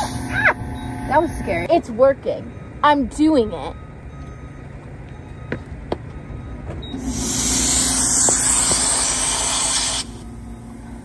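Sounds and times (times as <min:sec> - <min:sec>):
compressed air hissing: 0:07.0 - 0:10.3.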